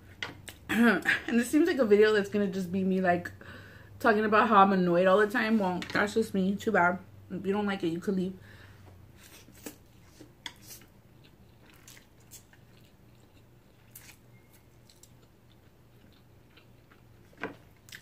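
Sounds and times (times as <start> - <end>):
wet chewing: 10.5 - 18.0.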